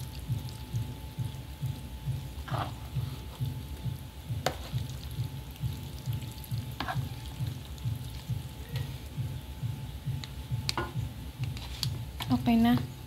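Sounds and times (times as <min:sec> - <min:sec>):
low thumping beat: 0:00.0 - 0:13.0
wet squishing of spaghetti: 0:04.6 - 0:08.6.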